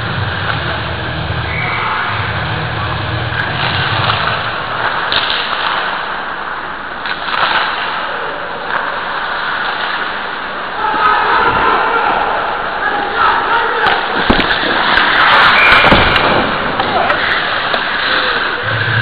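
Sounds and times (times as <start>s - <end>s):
skates scraping on ice: 3.4s - 11.6s, 13.8s - 19.0s
players shouting: 10.7s - 19.0s.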